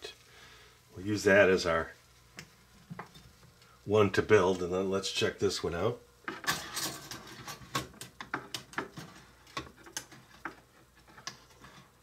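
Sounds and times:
metal utensil scraping baking pan: 6.3 - 11.9.

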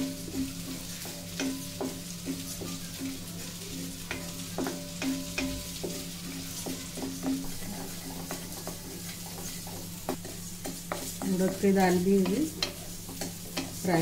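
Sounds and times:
faint sizzling: 0.0 - 14.0
spatula scraping metal pan: 4.0 - 11.6.

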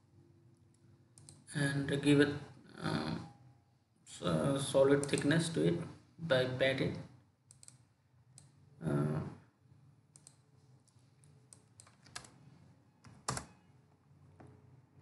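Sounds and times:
faint low hum: 0.0 - 15.0
keyboard and mouse clicks: 0.7 - 1.5, 5.0 - 5.3, 7.4 - 8.6, 10.1 - 12.4, 13.0 - 13.6.

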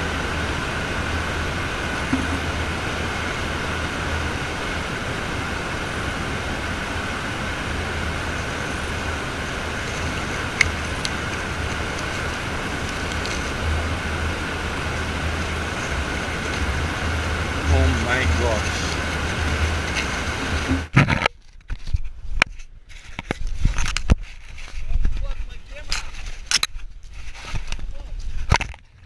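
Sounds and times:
low rumble: 0.0 - 21.0
constant high hum: 0.0 - 29.0.

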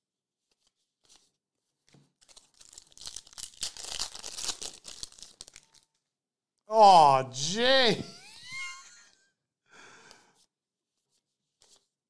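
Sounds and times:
foil wrapper crinkling and tearing: 2.2 - 6.0.

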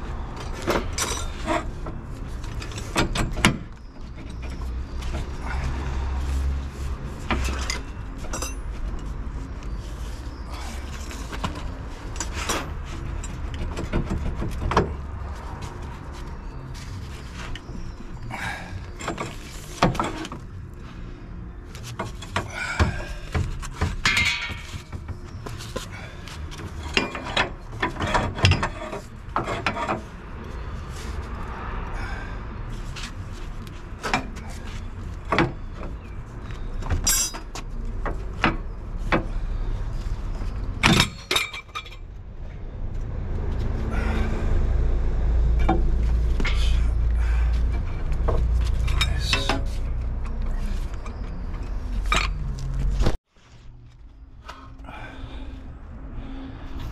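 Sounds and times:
metallic clanks of hand tools: 24.0 - 24.8, 37.0 - 37.6, 48.8 - 50.4.

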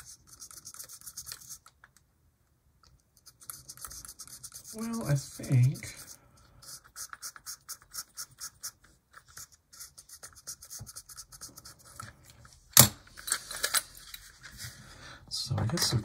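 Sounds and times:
tool scratching metal wheels: 3.3 - 8.8.

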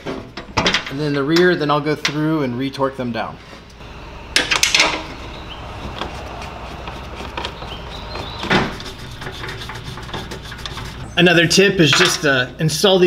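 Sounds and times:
skid plate knocking and scraping: 4.3 - 11.2.

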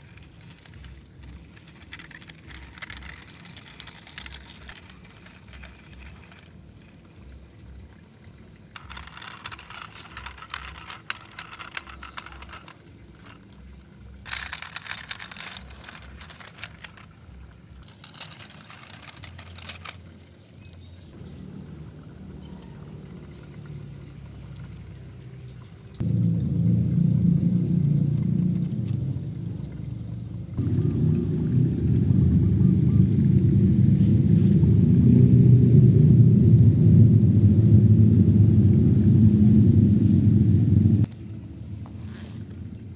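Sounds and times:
toy truck wheels scraping sand: 0.0 - 7.1, 8.7 - 13.6, 14.2 - 20.1
low steady hum: 0.0 - 42.9
small clicks: 8.8 - 20.9.

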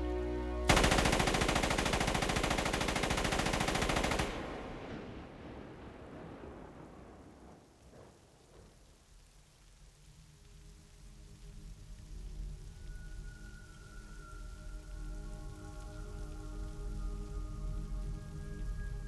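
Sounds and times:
submachine gun automatic burst: 0.7 - 4.8
rain: 0.7 - 19.0.

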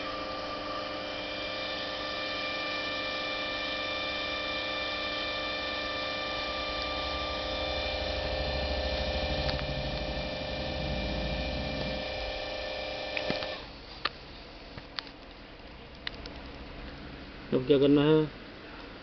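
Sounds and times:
electrical hum and whine: 0.0 - 19.0
low rumble: 6.9 - 12.5.

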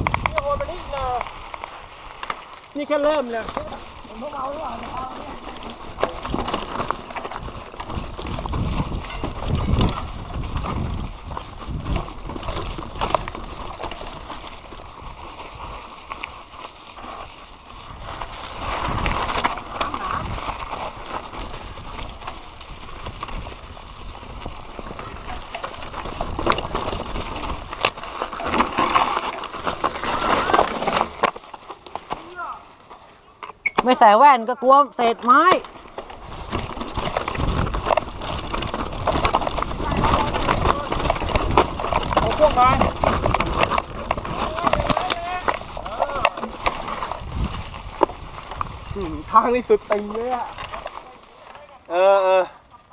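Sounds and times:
wind rumble on microphone: 0.0 - 1.2, 7.2 - 15.8, 36.2 - 49.4
bike rattling over bumps: 0.0 - 52.9.

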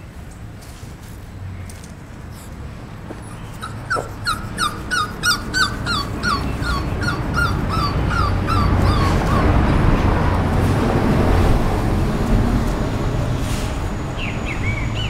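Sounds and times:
dog whimpering: 3.2 - 9.9.

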